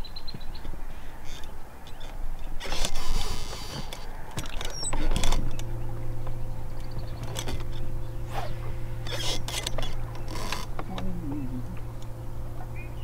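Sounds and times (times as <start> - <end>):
electric motor humming: 0.7 - 13.0
fishing line casting rush: 1.0 - 13.0
fishing reel clicks: 1.2 - 11.2.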